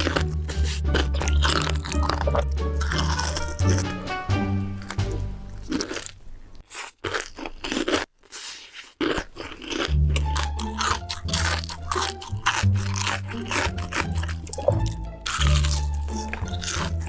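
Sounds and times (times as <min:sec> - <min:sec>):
crunching and chewing fried chicken: 0:00.0 - 0:04.1, 0:04.7 - 0:17.0
background music with bass: 0:00.0 - 0:05.8, 0:10.0 - 0:17.0.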